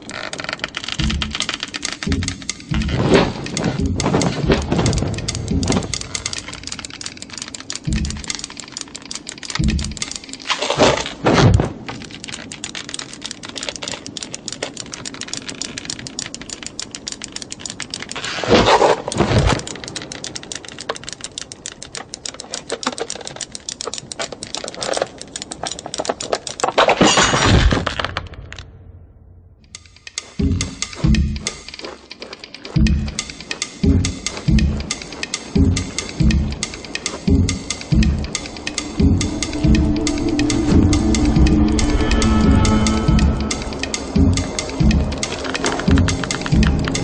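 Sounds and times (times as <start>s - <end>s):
knitting needles clicking fast: 0.0s - 26.8s, 29.7s - 47.0s
rushes of noise: 36.1s - 47.0s.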